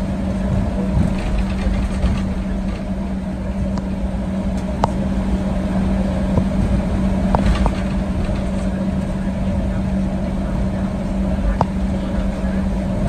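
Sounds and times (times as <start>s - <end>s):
jet engines humming: 0.0s - 13.0s
wheels rumbling: 0.0s - 13.0s.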